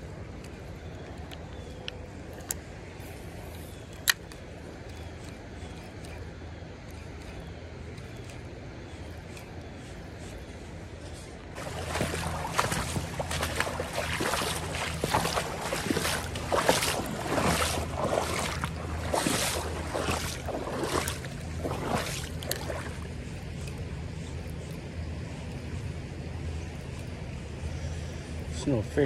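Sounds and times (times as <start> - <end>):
footsteps wading through water: 10.3 - 24.7.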